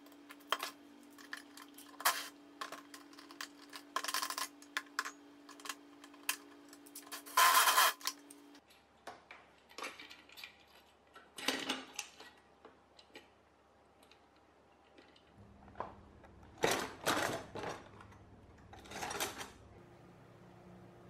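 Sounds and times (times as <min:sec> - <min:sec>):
metal parts clicking and clattering: 0:00.3 - 0:08.2, 0:16.6 - 0:19.6
faint steady hum: 0:12.0 - 0:21.0.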